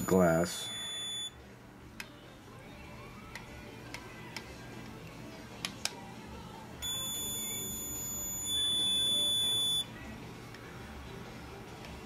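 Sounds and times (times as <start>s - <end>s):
tester buzzer high beep: 0.0s - 1.4s, 6.8s - 9.9s.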